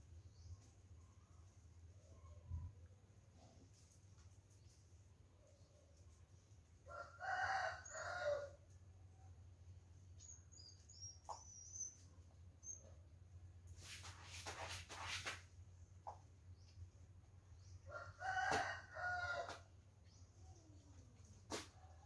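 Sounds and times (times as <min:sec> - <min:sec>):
rooster crowing: 0:06.9 - 0:08.6, 0:17.9 - 0:19.6
scratchy rustling: 0:13.8 - 0:15.5.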